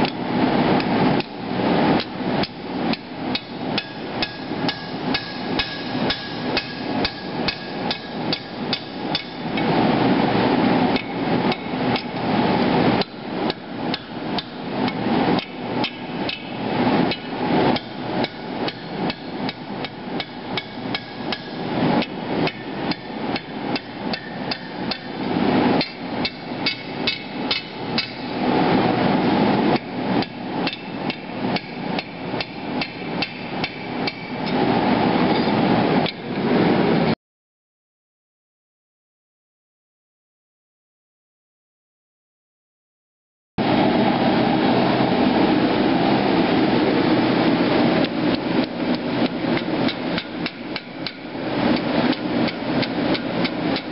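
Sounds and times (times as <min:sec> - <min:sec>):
hammer striking steel on anvil: 0:02.9 - 0:09.6, 0:13.0 - 0:28.4, 0:29.8 - 0:34.6.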